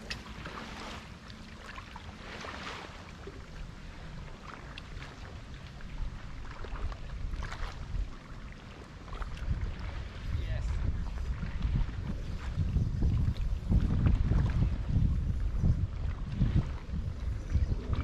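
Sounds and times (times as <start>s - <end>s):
wind rumble on microphone: 0.0s - 18.0s.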